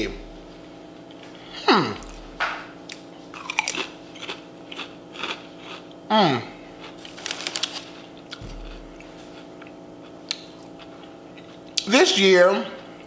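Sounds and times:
tortilla chips crunching: 2.9 - 5.9, 6.8 - 11.5.

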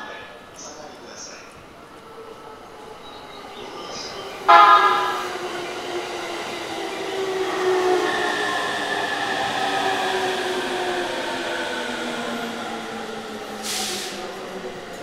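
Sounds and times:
train wheels on rails: 3.0 - 15.0
train horn blast: 4.5 - 5.5.

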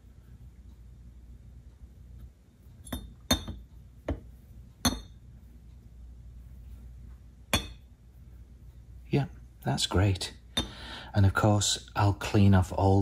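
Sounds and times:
metal clinking on a metal plate: 2.8 - 3.6.

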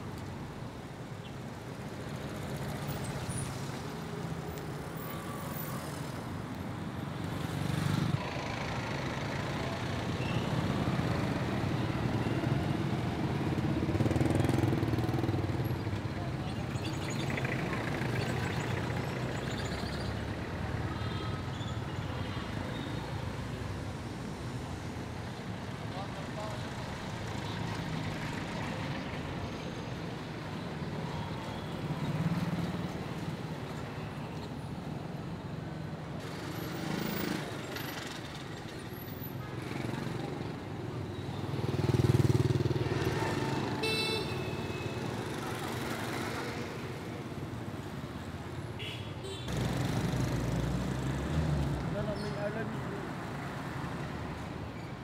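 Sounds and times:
street traffic: 0.0 - 55.0
motor scooters passing: 7.2 - 22.6, 36.2 - 48.3, 49.5 - 54.5
car horn toot: 43.8 - 44.8.

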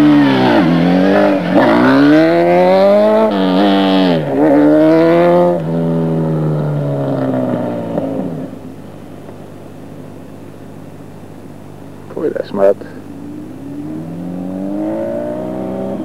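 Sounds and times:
motorcycle engine revving: 0.0 - 8.6, 13.0 - 16.0.

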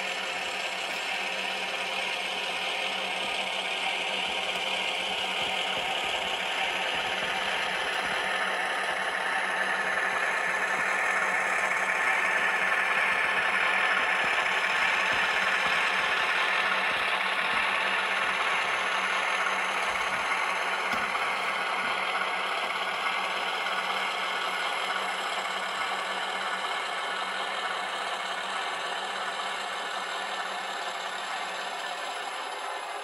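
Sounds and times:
model train engine drone: 0.0 - 33.0.

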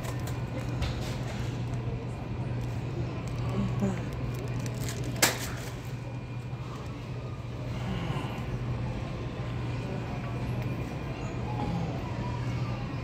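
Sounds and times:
supermarket background hum: 0.0 - 13.0.

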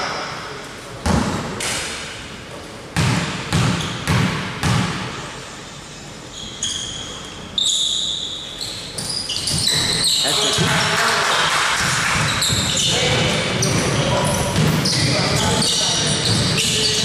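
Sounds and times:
basketball bouncing on court: 1.0 - 1.5, 3.0 - 5.2, 9.0 - 11.0, 11.8 - 17.0
sneaker squeaks: 3.5 - 4.7, 6.2 - 11.1, 11.8 - 17.0.

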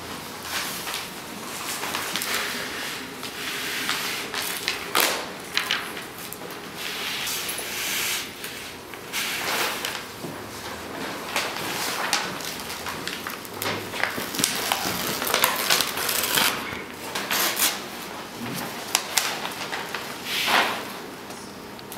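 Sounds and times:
paper tearing and rustling: 1.6 - 6.0, 11.3 - 17.8.

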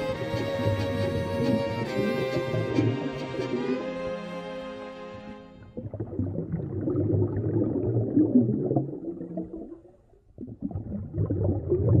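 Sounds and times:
underwater gurgling and rumbling: 5.6 - 12.0.

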